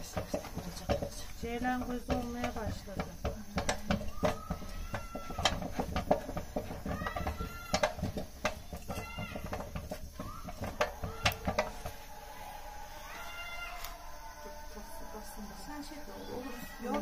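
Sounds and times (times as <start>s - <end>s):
spoon knocking against steel pot: 0.0s - 12.0s.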